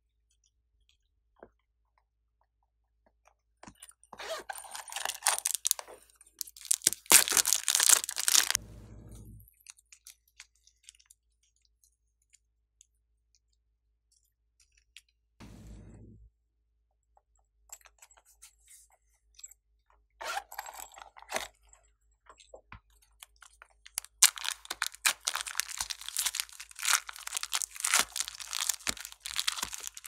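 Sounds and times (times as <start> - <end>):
plastic wrapper crinkling: 4.3 - 8.6, 23.9 - 30.0.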